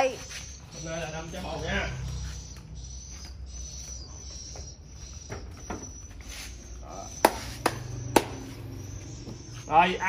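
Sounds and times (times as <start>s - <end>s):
sharp hand claps: 7.2s - 8.4s.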